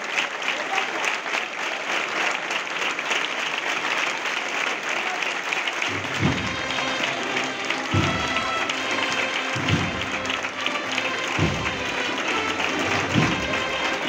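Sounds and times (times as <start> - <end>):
crowd applauding: 0.0 - 14.0
band playing drums and brass: 5.8 - 14.0.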